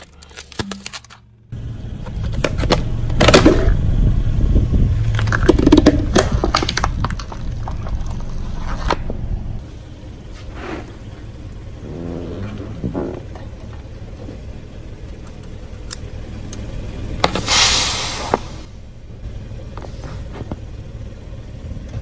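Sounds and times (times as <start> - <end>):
objects cracking and crunching: 0.0 - 1.3, 5.0 - 9.1
car engine and tyres rumbling: 0.0 - 22.0.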